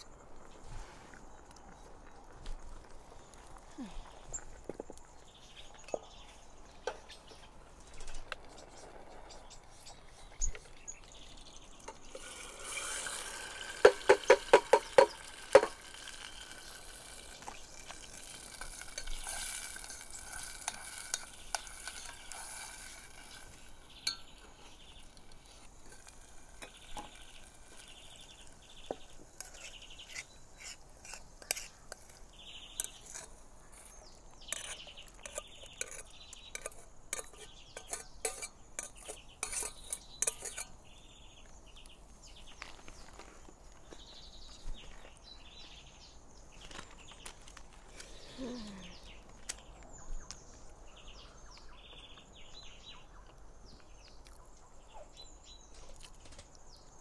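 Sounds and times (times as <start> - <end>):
pot hissing over fire: 0.0 - 40.8
metal spoon scraping saucepan: 12.0 - 15.7, 29.4 - 32.1, 32.7 - 40.8
spoon tapping pot: 13.8 - 15.8.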